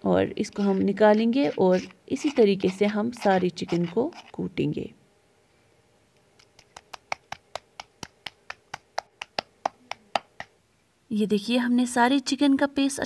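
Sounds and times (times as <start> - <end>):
pestle pounding in stone mortar: 6.5 - 10.5.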